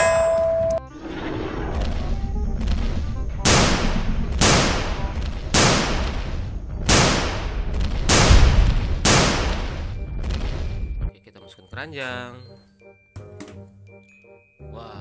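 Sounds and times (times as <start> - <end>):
steady low rumble: 0.6 - 11.1
gunshot cracks with hiss: 3.4 - 6.2, 6.9 - 9.6.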